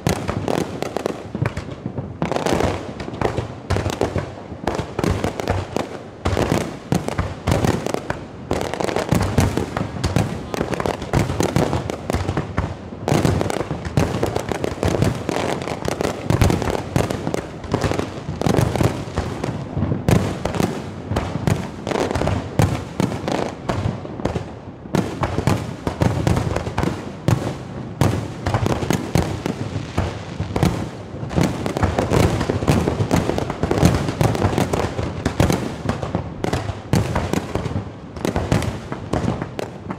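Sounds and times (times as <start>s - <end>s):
fireworks bursts and bangs: 0.0s - 39.9s.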